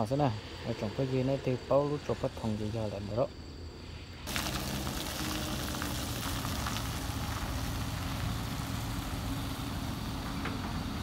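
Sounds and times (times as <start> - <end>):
steady hiss: 0.0 - 11.0
truck engine running: 4.3 - 11.0
tyres on wet mud: 4.3 - 11.0.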